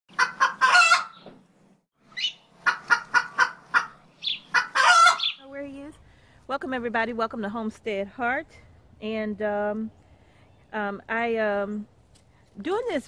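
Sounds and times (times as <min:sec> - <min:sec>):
hen cackling: 0:00.1 - 0:01.2, 0:02.1 - 0:05.4.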